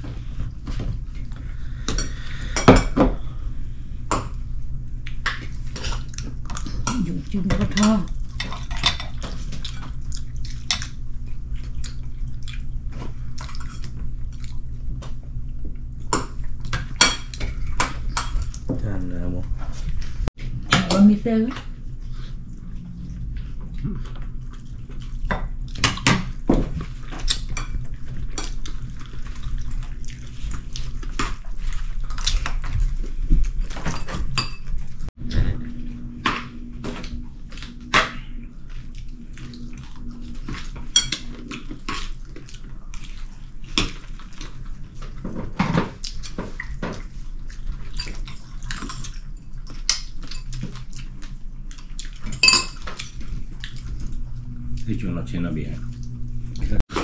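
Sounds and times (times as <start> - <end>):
low steady hum: 0.0 - 57.0
dishes and cutlery clinking: 33.7 - 34.8, 40.4 - 42.1, 52.2 - 53.3.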